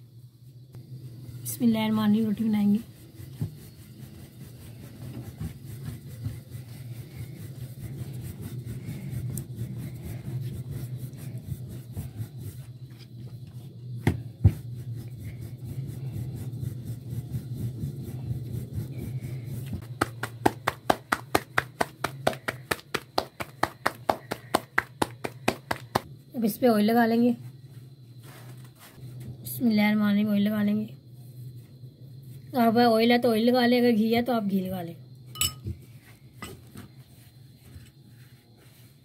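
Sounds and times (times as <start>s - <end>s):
rolling pin rubbing dough: 1.2s - 26.1s, 35.8s - 39.0s
dough slaps: 19.7s - 26.1s
quick regular taps: 19.9s - 26.1s.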